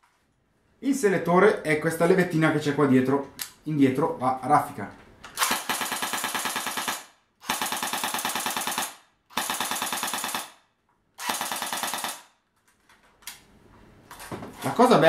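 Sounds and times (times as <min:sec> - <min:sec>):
airsoft gun firing full auto: 0:05.4 - 0:12.4.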